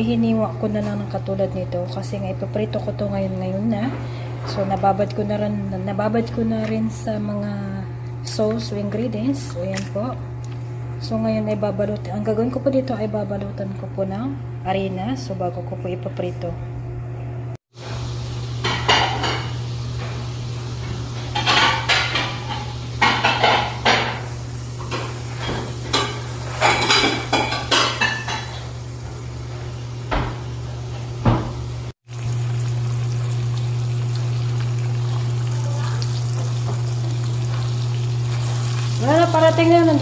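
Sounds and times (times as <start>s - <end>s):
fish deep-frying in hot oil: 17.7s - 28.3s, 32.0s - 40.0s
plate and utensils clinking: 24.9s - 28.7s.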